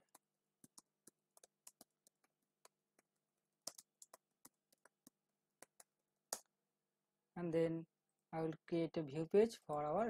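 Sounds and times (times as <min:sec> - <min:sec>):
faint keyboard typing: 0:00.0 - 0:06.5.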